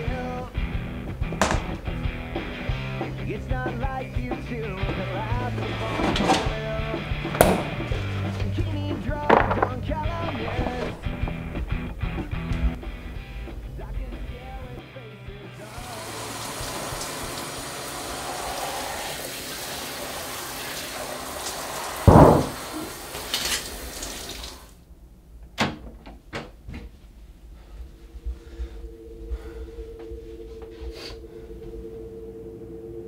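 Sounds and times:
sharp clicks or knocks: 1.4 - 1.8, 9.3 - 11.4, 22.1 - 22.6
loud thump: 7.4 - 7.8, 22.1 - 22.8
water running from tap: 15.6 - 24.8
steady two-note hum: 27.6 - 33.0.

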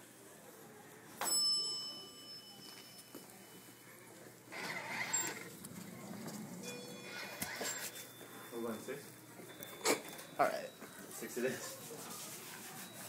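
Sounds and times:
bell-like chime: 1.2 - 3.9, 6.6 - 11.7.

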